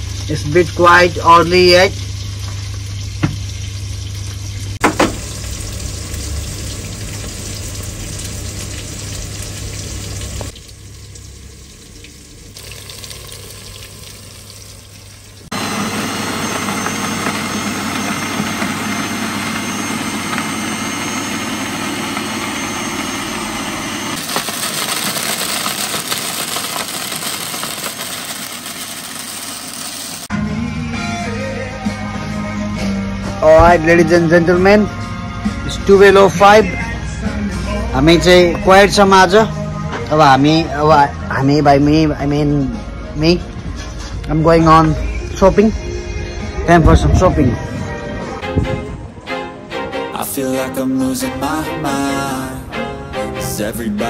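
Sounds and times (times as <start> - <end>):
kitchen hum: 0.0 - 30.3
blender motor running: 5.0 - 10.6, 15.5 - 30.3.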